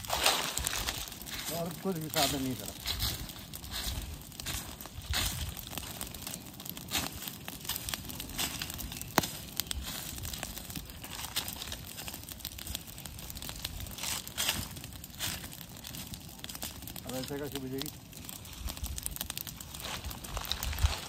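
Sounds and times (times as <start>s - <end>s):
dry leaves crunching and rustling: 0.0s - 5.6s, 19.7s - 21.0s.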